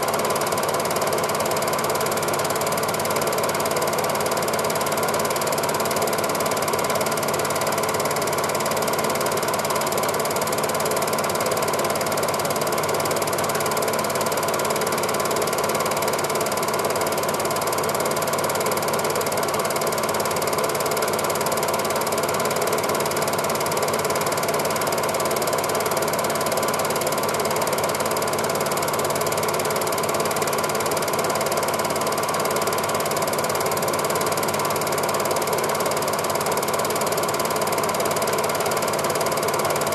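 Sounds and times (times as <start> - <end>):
film projector clatter and whirr: 0.0 - 39.9.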